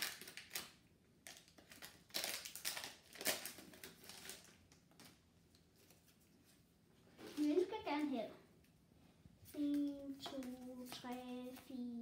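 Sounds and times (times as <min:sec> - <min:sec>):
foil pack tearing and crinkling: 0:00.0 - 0:05.1.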